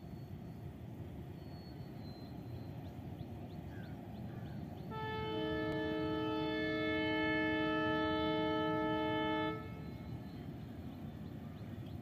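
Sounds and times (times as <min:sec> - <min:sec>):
faint bird chirps: 0:00.0 - 0:04.9.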